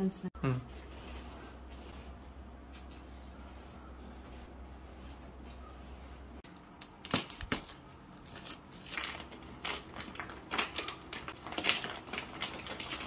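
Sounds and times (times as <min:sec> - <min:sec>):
plastic wrapping crinkling: 0:06.4 - 0:13.0.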